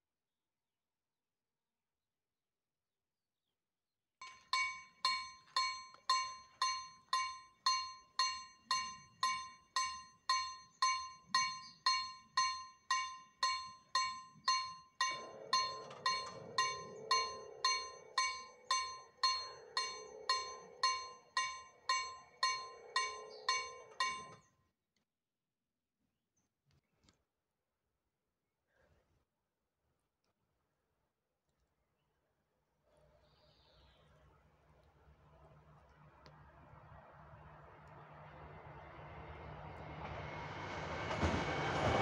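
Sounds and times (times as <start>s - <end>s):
level crossing bell ringing: 4.2s - 24.4s.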